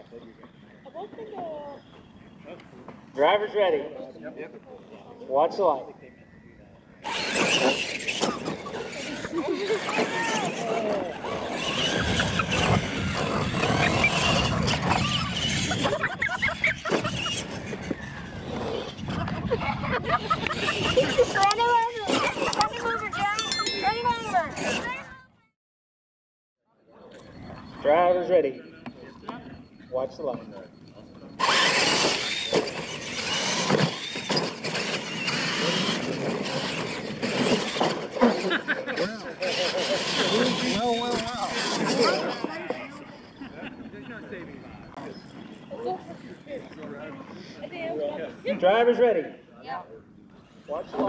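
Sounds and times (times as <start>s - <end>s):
toy truck motor and tyres rumbling: 7.0s - 23.2s, 31.1s - 43.4s.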